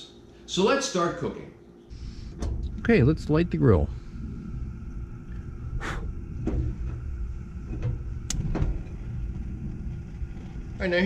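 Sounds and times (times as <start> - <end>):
gas burner hissing: 1.9 - 11.0
low steady rumble: 1.9 - 11.0
igniter clicks: 7.6 - 8.8.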